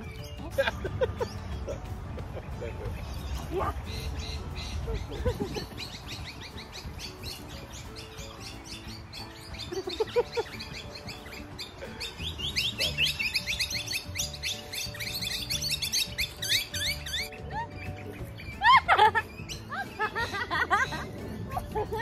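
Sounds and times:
birds chirping: 0:00.0 - 0:22.0
soft music: 0:00.0 - 0:22.0.

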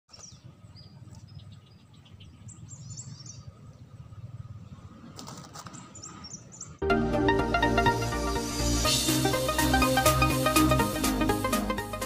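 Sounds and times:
small birds chirping: 0:00.1 - 0:06.8.

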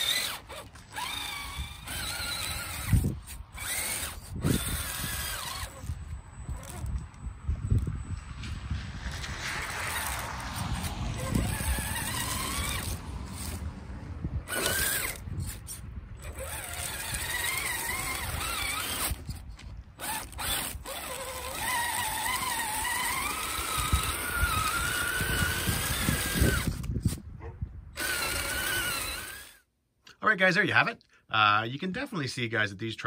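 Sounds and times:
electric motor and gears whining: 0:00.0 - 0:27.3, 0:27.9 - 0:29.7
tracks rumbling over snow: 0:07.4 - 0:14.6.

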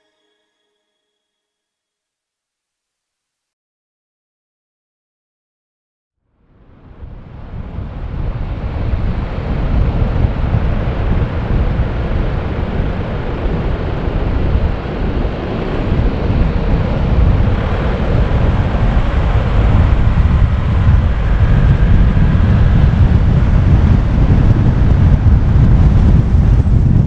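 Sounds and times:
wind buffeting microphone: 0:06.6 - 0:27.0
car road rumble: 0:07.1 - 0:27.0.

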